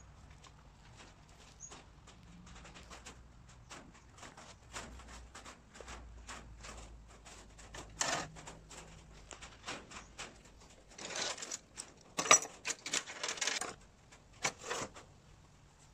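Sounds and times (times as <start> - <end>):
drawer rattling: 7.6 - 8.9, 10.6 - 13.8, 14.4 - 15.0
drawer and tools clattering: 7.7 - 13.8, 14.4 - 15.0
drawer clicking and knocking: 12.2 - 13.8.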